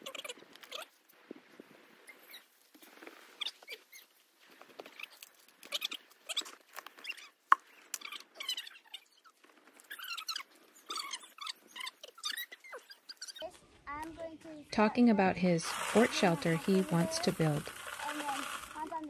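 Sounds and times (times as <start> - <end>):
digging dry dirt and gravel: 15.4 - 19.0.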